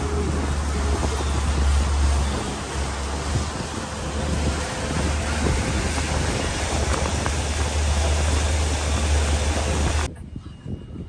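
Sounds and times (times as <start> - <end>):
churning water: 0.0 - 10.1
outboard motor rumbling: 0.0 - 10.1
wind on microphone: 0.0 - 11.0.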